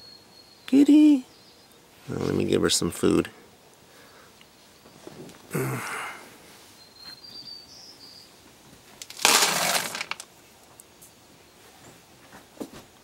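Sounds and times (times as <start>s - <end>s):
kibble rattling in plastic container: 9.0s - 10.2s.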